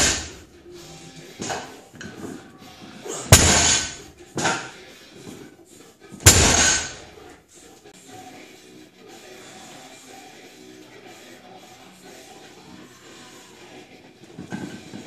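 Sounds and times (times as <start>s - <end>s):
barbell thudding on platform: 0.0s - 0.4s, 3.3s - 4.7s, 6.2s - 7.1s.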